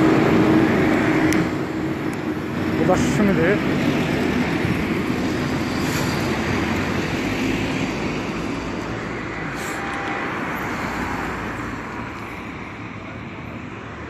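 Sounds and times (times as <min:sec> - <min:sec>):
street traffic: 0:00.0 - 0:14.0.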